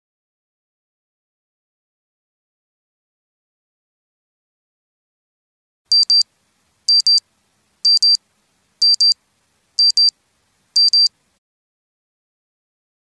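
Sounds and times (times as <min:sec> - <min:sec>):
timer alarm double beeps: 0:05.9 - 0:06.2, 0:06.9 - 0:07.2, 0:07.9 - 0:08.2, 0:08.8 - 0:09.2, 0:09.8 - 0:10.1, 0:10.8 - 0:11.1.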